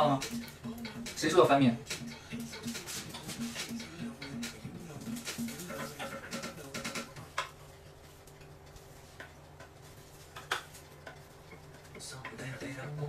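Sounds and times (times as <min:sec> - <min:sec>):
chopsticks tapping on pan: 0:10.3 - 0:12.4.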